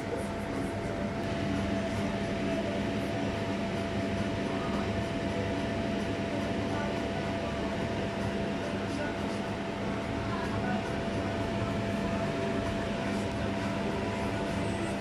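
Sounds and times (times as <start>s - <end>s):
kitchen appliance humming: 0.8s - 15.0s.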